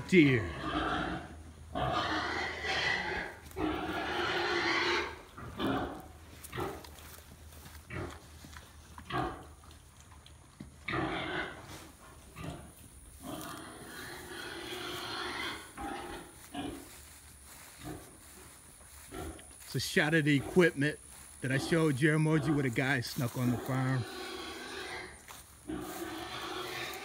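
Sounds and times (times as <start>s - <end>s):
pigs grunting: 0.0s - 27.0s.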